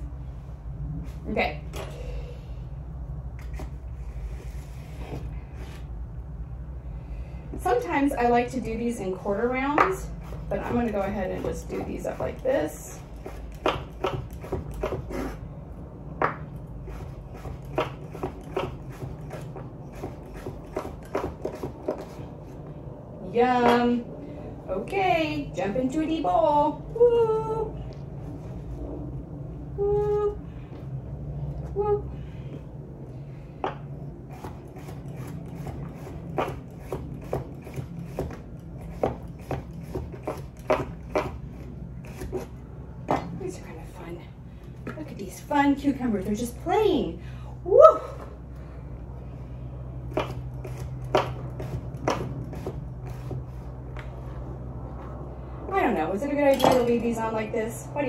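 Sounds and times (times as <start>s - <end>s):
knife chopping on wooden board: 13.2s - 15.4s, 16.2s - 22.2s, 34.3s - 41.4s, 50.1s - 53.5s.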